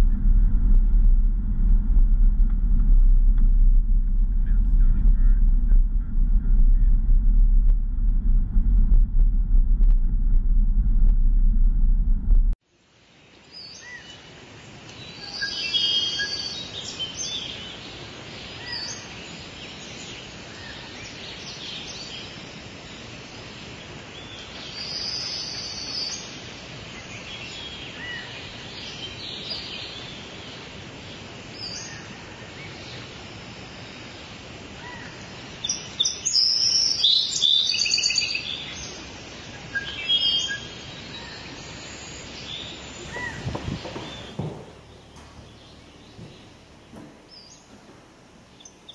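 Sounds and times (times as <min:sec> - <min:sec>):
steady background hiss: 0:12.6 - 0:48.9
birds calling and chirping: 0:34.8 - 0:48.9.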